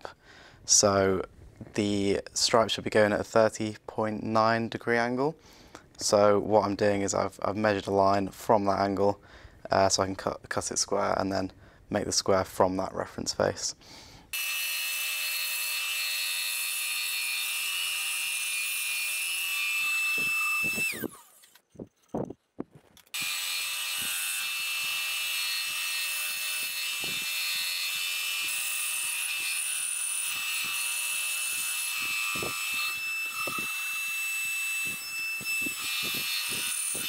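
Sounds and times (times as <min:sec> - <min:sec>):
bandsaw cutting wood: 0:14.3 - 0:21.6, 0:23.1 - 0:37.0.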